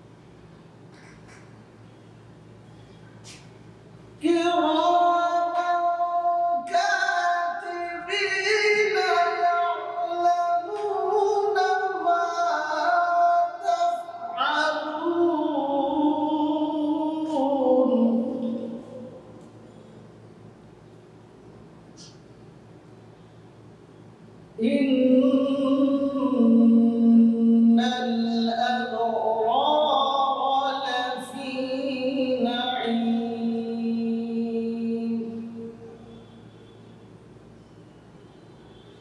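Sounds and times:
man chanting melodically: 4.2s - 19.5s, 24.6s - 36.0s.

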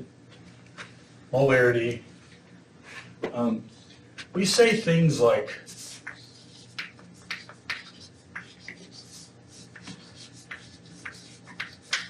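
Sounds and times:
chalk writing on a chalkboard: 5.6s - 12.0s.

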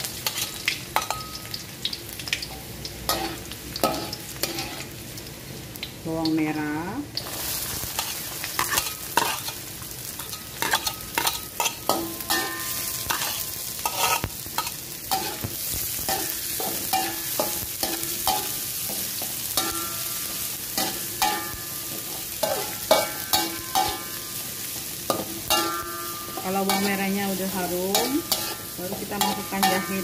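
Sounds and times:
shallots sizzling in hot oil: 0.0s - 30.0s
metal spatula scraping a wok: 3.1s - 5.0s, 7.3s - 9.6s, 10.2s - 30.0s.

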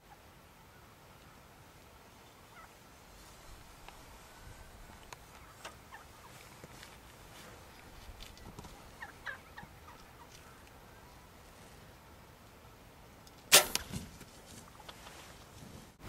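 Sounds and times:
wild turkey calls: 2.4s - 3.0s, 4.3s - 6.5s, 8.4s - 11.3s
bow shot crack: 13.5s - 14.1s.

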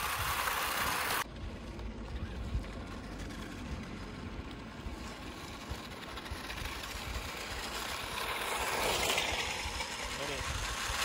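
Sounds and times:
toy car electric motors: 0.0s - 1.3s, 2.0s - 11.0s
wind rumble on microphone: 0.0s - 7.7s.

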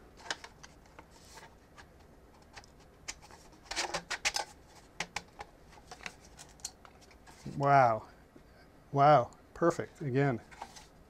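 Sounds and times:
plastic clicks and scrapes: 0.1s - 7.6s, 10.4s - 10.9s.

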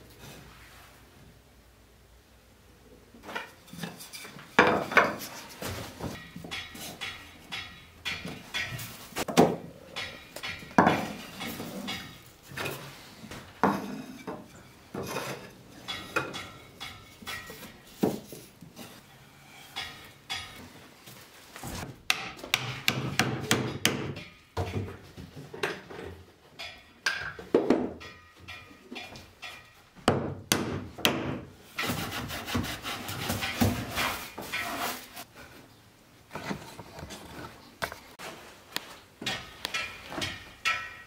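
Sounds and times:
wooden slats clattering: 39.2s - 41.0s.

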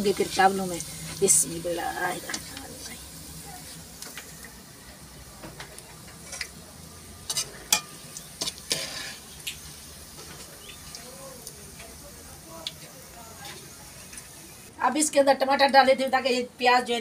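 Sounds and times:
onions sizzling in hot oil: 0.0s - 14.7s
metal spoon scraping pot: 7.3s - 9.4s.

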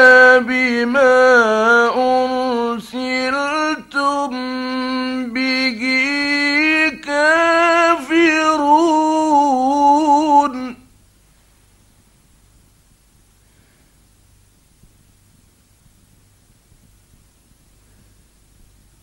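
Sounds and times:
man reciting in ornamented chant: 0.0s - 10.9s.

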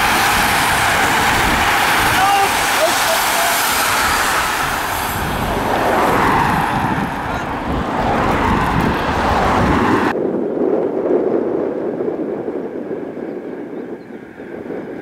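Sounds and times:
vehicles passing: 0.0s - 10.2s
bicycle tyres rushing past: 0.0s - 15.0s
muffled wind rumble: 0.0s - 15.0s
wind on microphone: 0.0s - 15.0s.

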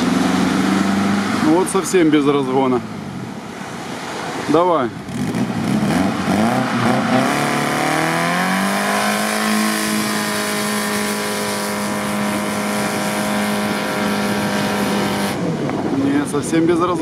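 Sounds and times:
engine revving hard: 5.0s - 15.4s.

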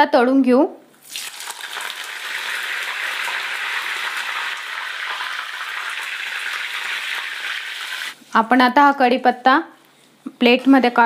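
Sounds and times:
leaves sizzling in hot oil: 1.0s - 8.2s.

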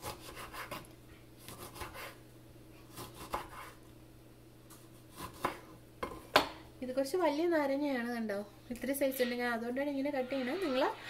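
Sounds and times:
knife cutting on wooden board: 0.0s - 2.2s, 2.9s - 3.8s.

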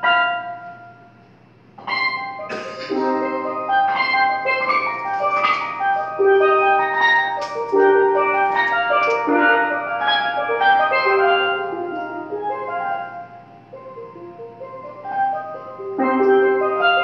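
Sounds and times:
steelpan melody: 0.0s - 1.2s, 1.8s - 17.0s.

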